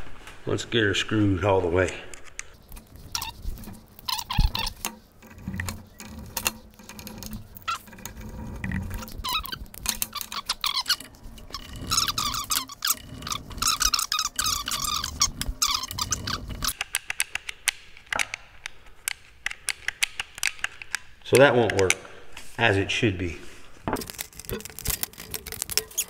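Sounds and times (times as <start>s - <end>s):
clicks of metal parts: 1.9s - 22.1s
short high squeaks: 2.6s - 16.8s, 24.1s - 26.0s
screwdriver driving screws: 2.6s - 18.3s, 24.0s - 26.0s.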